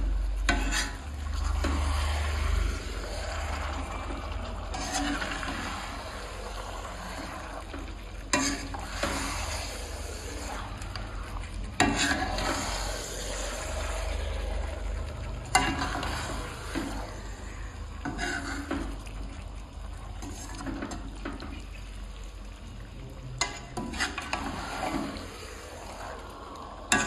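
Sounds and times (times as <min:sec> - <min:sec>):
spoon stirring meat in a pan: 0:00.4 - 0:07.5, 0:08.2 - 0:13.2, 0:23.4 - 0:25.4.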